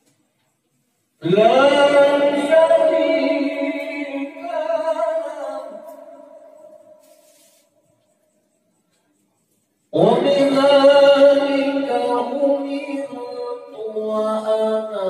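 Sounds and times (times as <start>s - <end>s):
man reciting melodically: 1.2s - 7.0s, 9.9s - 15.0s.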